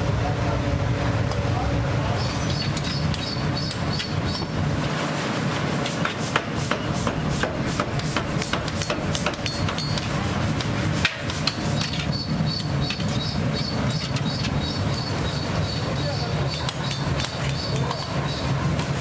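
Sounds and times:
steady low hum: 0:00.0 - 0:19.0
hammer striking metal on anvil: 0:06.0 - 0:10.2.

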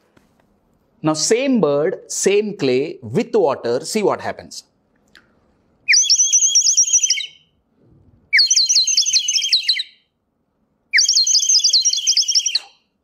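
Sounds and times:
water bird whistle warbling trill: 0:05.9 - 0:07.5, 0:08.4 - 0:10.0, 0:11.0 - 0:12.9.

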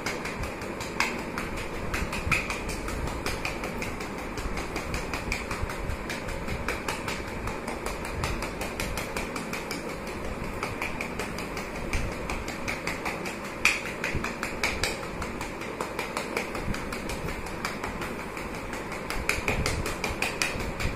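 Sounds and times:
hand tapping on back: 0:00.0 - 0:20.9
steady hum: 0:00.0 - 0:20.9.

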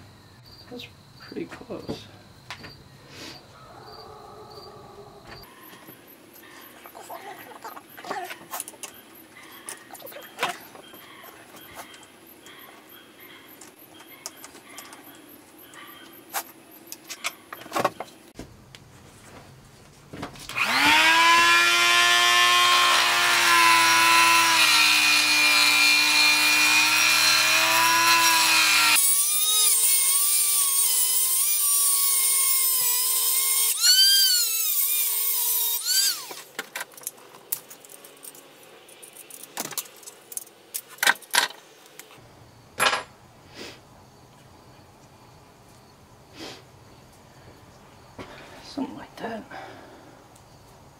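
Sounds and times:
rotary tool whining: 0:20.5 - 0:36.5.

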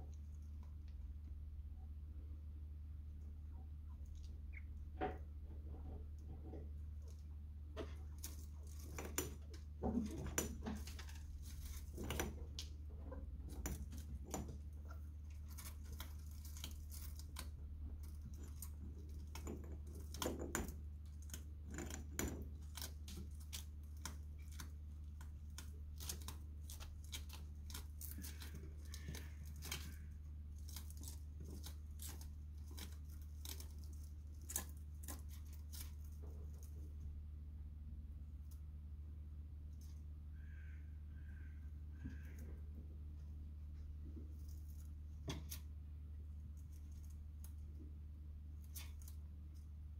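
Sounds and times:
chinchilla gnawing stone: 0:06.5 - 0:37.0.

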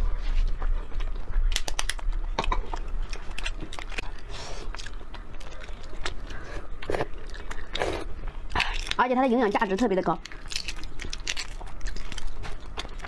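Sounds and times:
egg shell cracking: 0:10.2 - 0:12.2.

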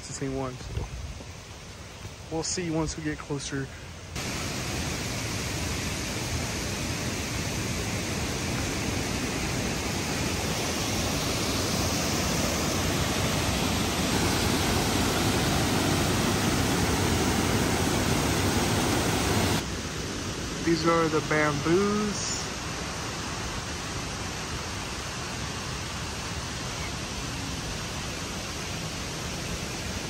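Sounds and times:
waterfall rushing: 0:04.2 - 0:30.0.

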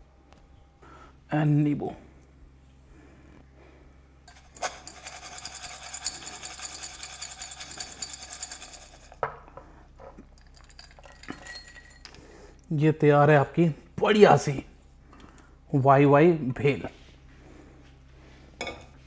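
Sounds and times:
dry noodles rattling in steel bowl: 0:04.3 - 0:09.2.

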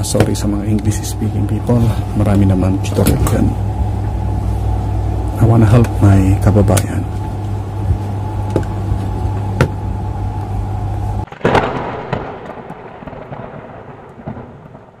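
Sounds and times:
electrical hum: 0:00.0 - 0:15.0
thunder crack rumbling: 0:11.2 - 0:15.0.

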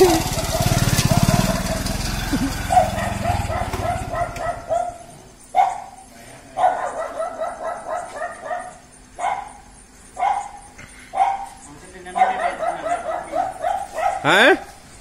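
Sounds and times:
dog barking: 0:00.0 - 0:01.8, 0:02.7 - 0:06.0, 0:06.6 - 0:14.7
low engine running: 0:00.0 - 0:04.8.

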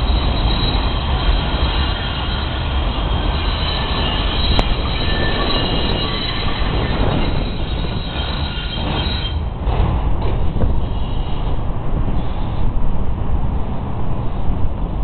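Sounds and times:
train wheels squealing: 0:00.0 - 0:09.6, 0:10.2 - 0:11.6, 0:12.2 - 0:12.7
elevated train rumbling on track: 0:00.0 - 0:15.0.

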